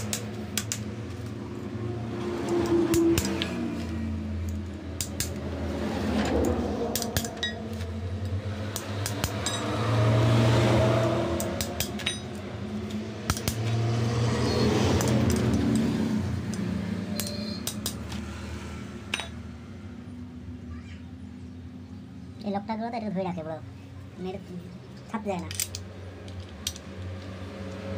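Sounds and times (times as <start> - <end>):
metal spanner clicking on nut: 16.5 - 18.0, 25.4 - 27.8.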